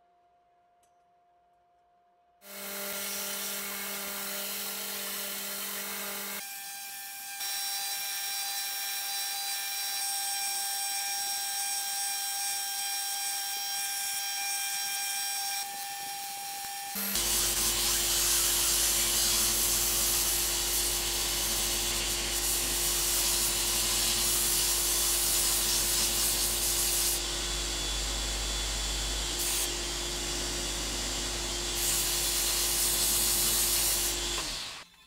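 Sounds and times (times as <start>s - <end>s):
belt grinder whining: 16.4s - 34.9s.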